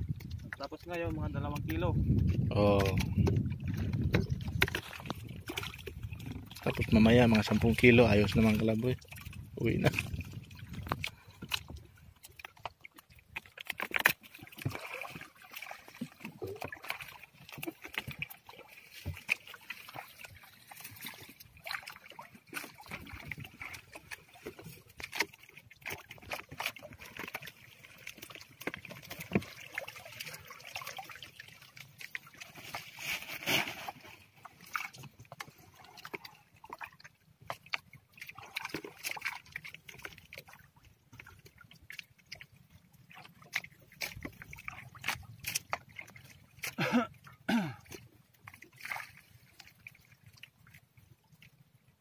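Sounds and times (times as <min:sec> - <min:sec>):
water dripping and sloshing: 0:00.0 - 0:52.0.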